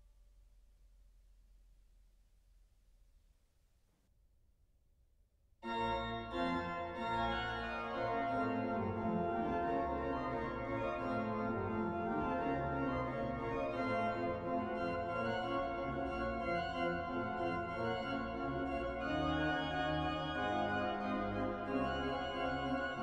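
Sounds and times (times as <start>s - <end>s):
pipe organ playing chords: 5.7s - 23.0s.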